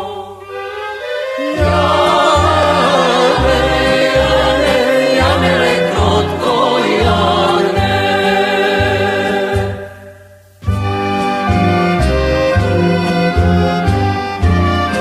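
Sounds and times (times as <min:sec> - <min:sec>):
folk singing voices: 0:00.0 - 0:10.2
instrumental music with pulsing bass: 0:01.6 - 0:15.0.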